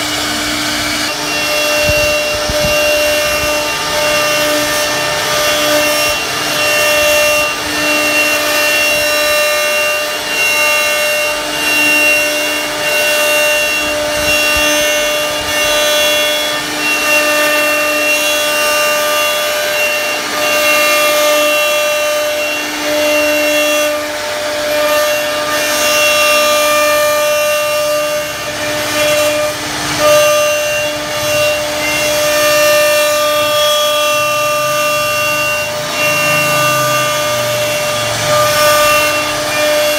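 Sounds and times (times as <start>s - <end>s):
router bit cutting wood: 0.0s - 39.9s
router spindle whine: 0.0s - 39.9s.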